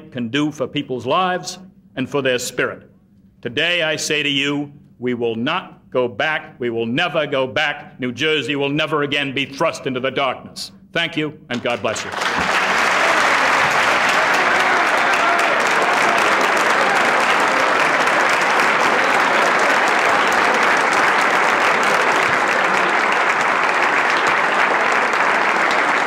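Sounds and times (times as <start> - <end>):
audience applause: 11.8 - 26.0.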